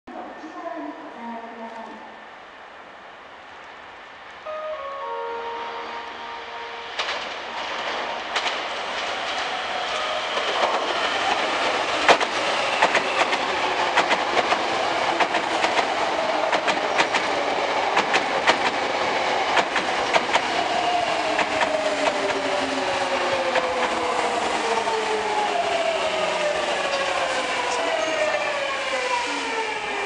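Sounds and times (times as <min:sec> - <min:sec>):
train wheels clicking over rail joints: 0:08.3 - 0:09.6, 0:10.3 - 0:22.7.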